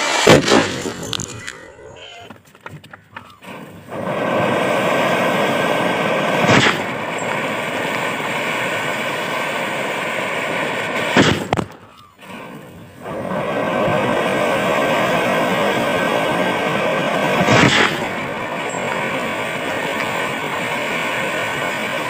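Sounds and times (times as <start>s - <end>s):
sharp bangs: 0.0s - 1.5s, 6.2s - 12.3s
fountain fireworks hissing: 0.0s - 1.6s, 3.2s - 22.0s.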